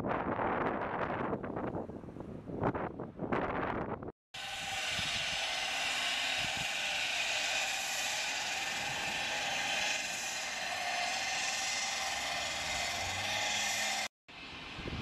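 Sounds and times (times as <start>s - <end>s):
distant engines: 4.4s - 15.0s
traffic hum: 4.9s - 14.7s.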